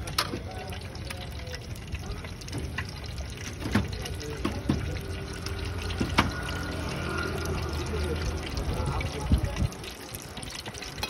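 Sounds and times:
eggs sizzling in oil: 0:00.0 - 0:11.0.

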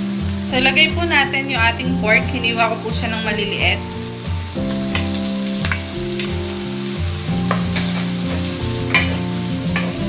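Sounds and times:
background music with beat: 0:00.0 - 0:10.0
meat sizzling in hot oil: 0:00.0 - 0:10.0
stirring in a wok: 0:04.6 - 0:10.0.

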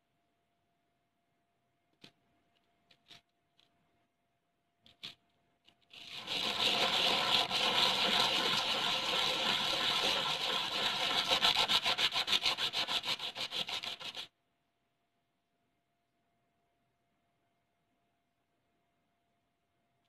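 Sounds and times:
gritty scraping on a board: 0:05.9 - 0:14.3.

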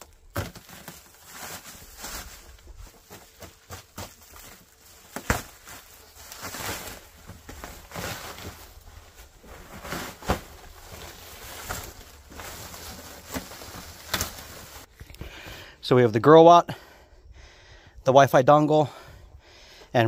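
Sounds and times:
packaging rustling: 0:00.0 - 0:14.9.

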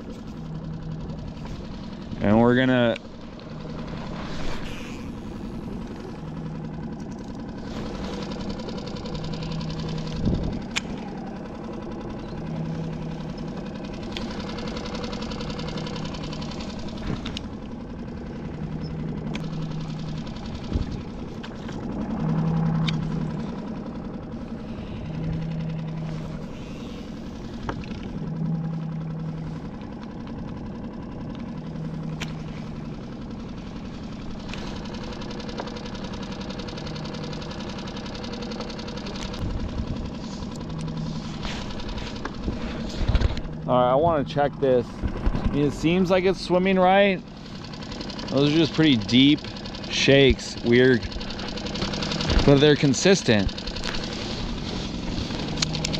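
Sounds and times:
outboard motor running: 0:00.0 - 0:55.9.

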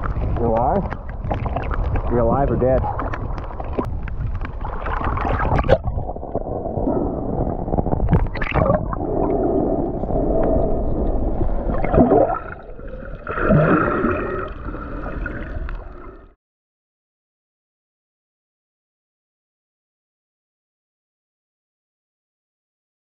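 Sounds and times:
muffled water sloshing and gurgling: 0:00.0 - 0:16.4.

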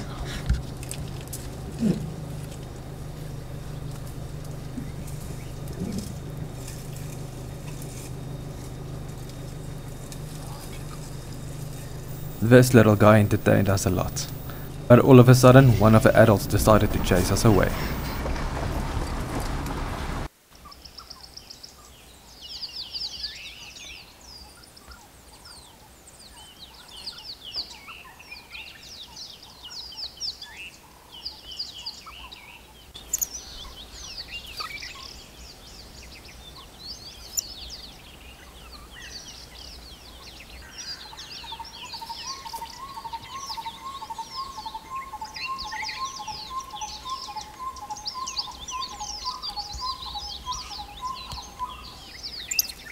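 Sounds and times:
repeated low bird note: 0:00.0 - 0:20.3
birds chirping and twittering: 0:00.0 - 0:52.9.

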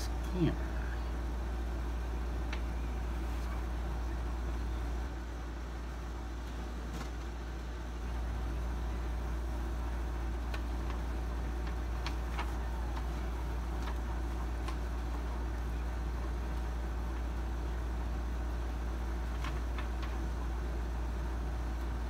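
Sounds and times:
steady low hum: 0:00.0 - 0:22.0
faint clicks and taps: 0:02.4 - 0:02.7.

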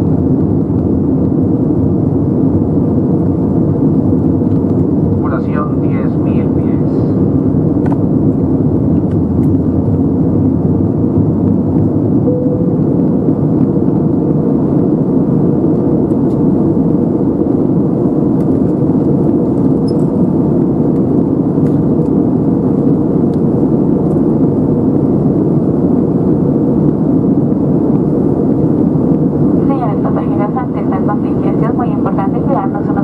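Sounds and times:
airplane cabin engine roar: 0:00.0 - 0:33.0
air rushing past fuselage: 0:07.2 - 0:16.0.

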